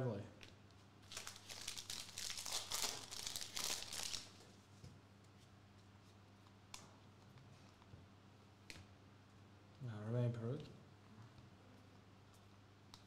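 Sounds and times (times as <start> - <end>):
foil wrapper crinkling: 1.0 - 4.4.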